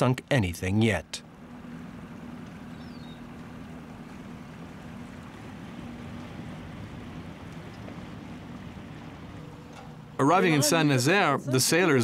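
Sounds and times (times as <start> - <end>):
boat motor humming: 0.0 - 12.0.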